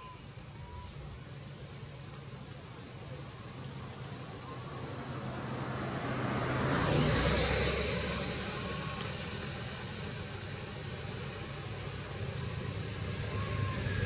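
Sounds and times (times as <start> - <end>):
motor vehicle passing by: 4.6 - 14.0.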